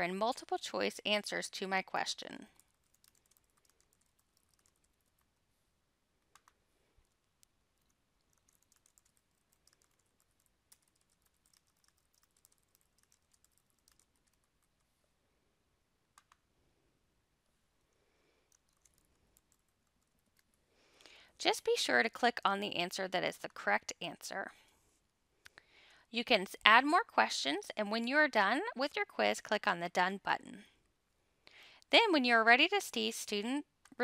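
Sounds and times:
computer keyboard typing: 2.2 - 5.3, 6.3 - 14.9, 18.5 - 20.5
mouse clicks: 6.3 - 6.6, 16.1 - 16.4.

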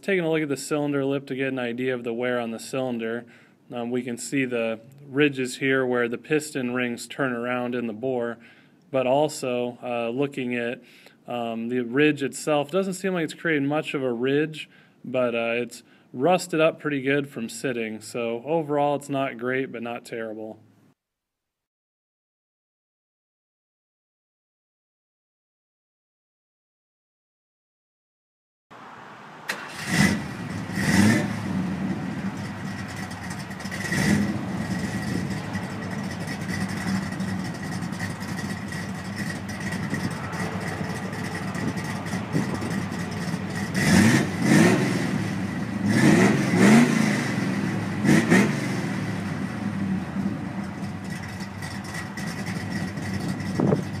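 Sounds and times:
car engine starting and revving: 28.8 - 54.0.

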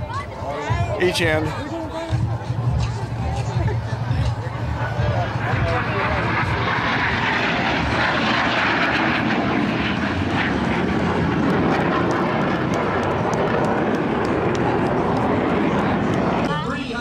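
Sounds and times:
jet passing overhead: 0.0 - 17.0.

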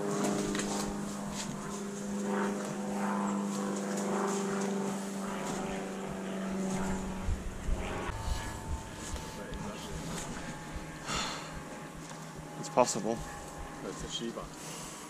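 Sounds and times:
engine drone: 0.0 - 15.0
faint voices: 8.1 - 14.5.

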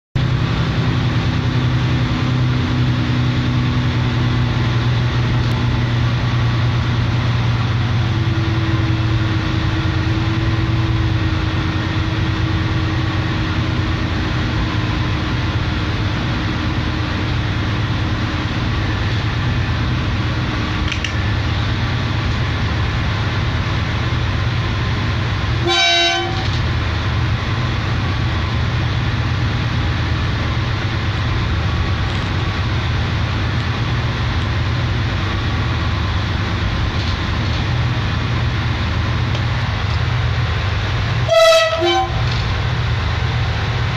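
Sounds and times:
diesel locomotive engine running: 0.2 - 43.9
train horn toot: 25.6 - 26.6, 41.2 - 42.4.

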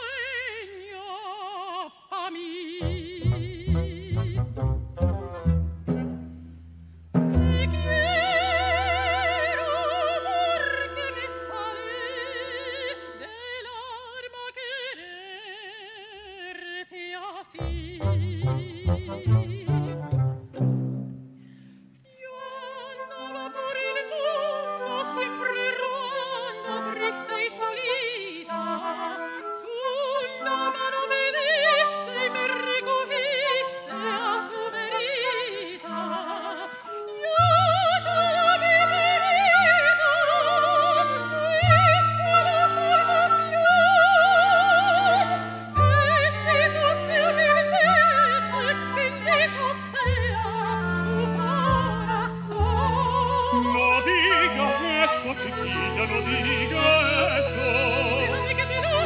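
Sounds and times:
soprano singing with vibrato: 0.0 - 4.7, 7.4 - 20.3, 22.1 - 59.0
orchestra: 2.4 - 15.5, 17.3 - 59.0.

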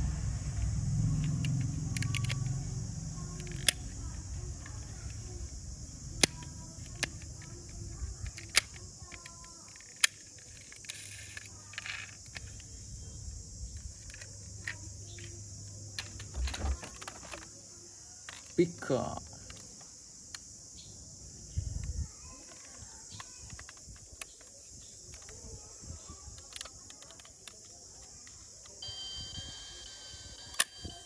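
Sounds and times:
toy car doors clicking: 1.2 - 2.6, 3.2 - 5.2, 6.2 - 12.7, 13.8 - 15.4, 16.0 - 17.5, 26.3 - 28.8, 30.4 - 31.0
toy cars clattering in plastic basket: 16.0 - 17.5.

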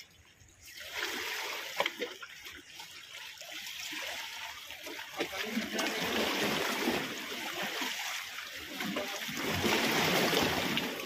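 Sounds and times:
waves splashing against rocks: 4.9 - 11.0.

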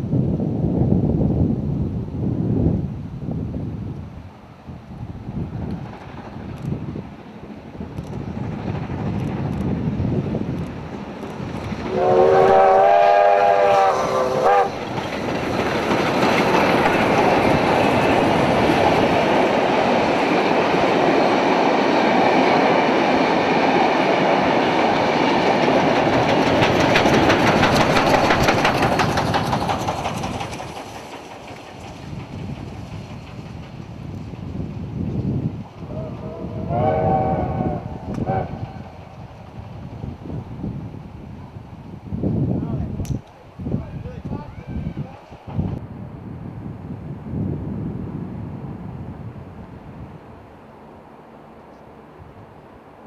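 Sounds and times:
train wheels clicking on rail joints: 5.5 - 40.2, 43.0 - 43.4
steam locomotive whistle: 11.9 - 14.8, 35.9 - 39.0.

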